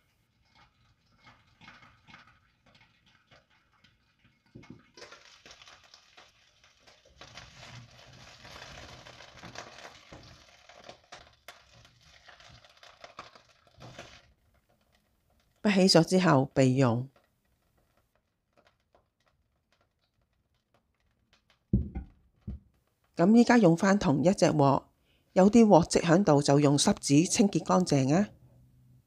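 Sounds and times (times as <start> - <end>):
peppers sizzling in frying pan: 4.5 - 12.0.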